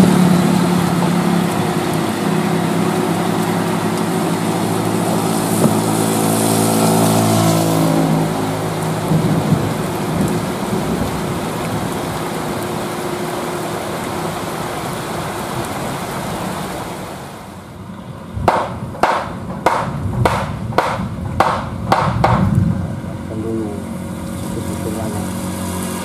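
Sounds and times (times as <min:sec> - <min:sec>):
heavy rain pouring: 0:00.0 - 0:26.0
rhythmic sharp knocks: 0:18.5 - 0:22.4.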